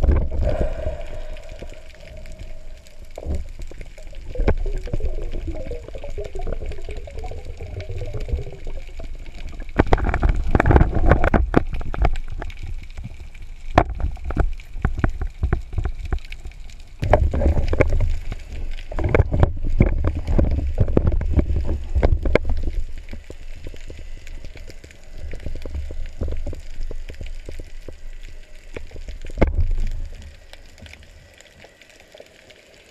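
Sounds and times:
underwater rumble of moving water: 0:00.0 - 0:32.9
churning water and knocks: 0:13.7 - 0:18.1.

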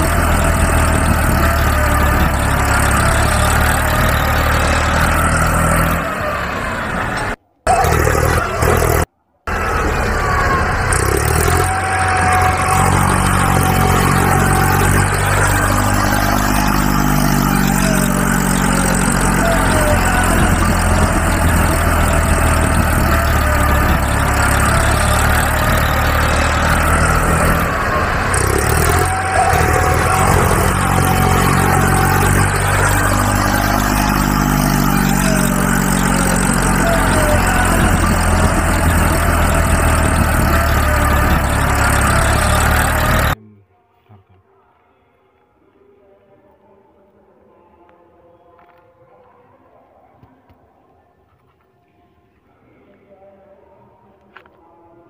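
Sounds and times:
heavy vehicle engine revving: 0:00.0 - 0:43.4.

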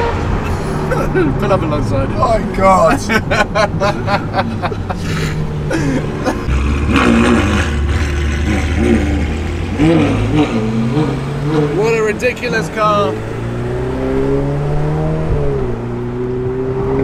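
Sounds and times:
car engine revving: 0:00.0 - 0:17.0
traffic: 0:00.0 - 0:17.0.

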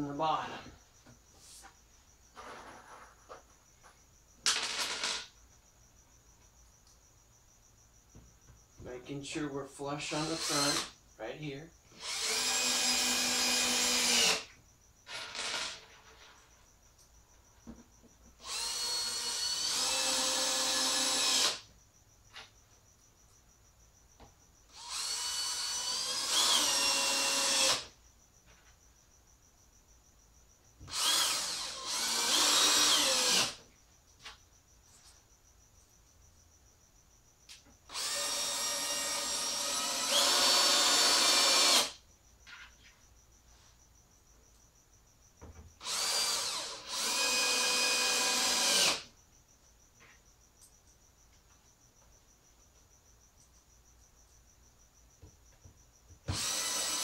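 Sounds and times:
cordless drill driving screws: 0:10.2 - 0:10.9, 0:12.0 - 0:14.5, 0:15.1 - 0:15.9, 0:18.4 - 0:21.6, 0:24.7 - 0:27.9, 0:30.8 - 0:33.6, 0:37.9 - 0:42.0, 0:45.8 - 0:49.0, 0:56.3 - 0:57.0.

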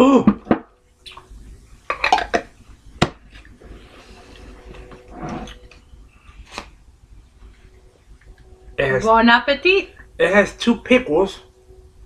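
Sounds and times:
tabletop handling noise: 0:03.0 - 0:05.6.

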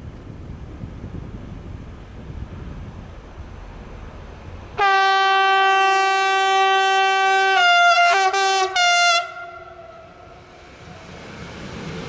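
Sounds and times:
locomotive horn blasts: 0:04.8 - 0:10.3.

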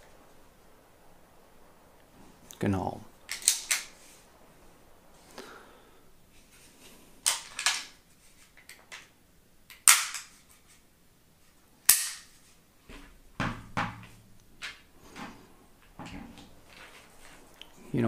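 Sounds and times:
sharp metallic pistol clicks: 0:11.9 - 0:12.2.

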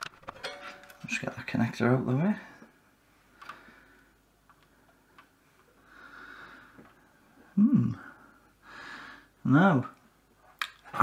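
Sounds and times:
faint plastic clicks: 0:03.3 - 0:05.8
long breath out: 0:05.8 - 0:06.8
man humming briefly: 0:07.6 - 0:08.1.

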